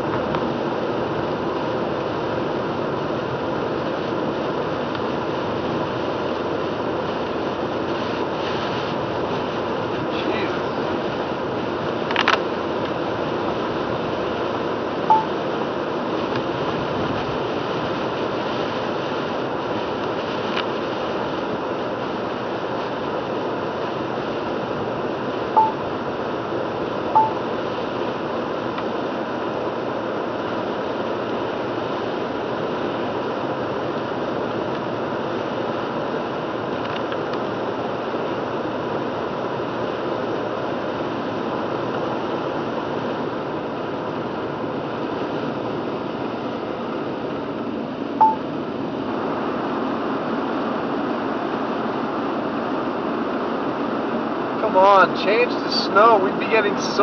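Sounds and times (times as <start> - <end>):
tyre noise on wet road: 0.1 - 14.8
tyres hissing on wet road: 0.6 - 36.7, 48.8 - 57.0
short electronic beeps: 15.1 - 15.4, 25.6 - 25.9, 27.2 - 27.5, 48.2 - 48.4.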